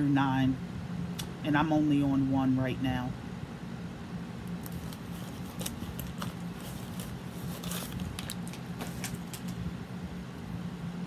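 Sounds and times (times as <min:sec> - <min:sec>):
steady low hum: 0:00.0 - 0:11.0
plastic sleeve rustling and crinkling: 0:04.6 - 0:09.6.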